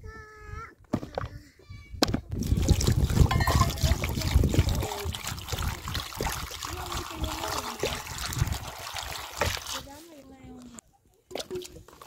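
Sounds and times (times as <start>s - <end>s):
water splashing and trickling: 2.3s - 10.5s, 11.2s - 12.0s.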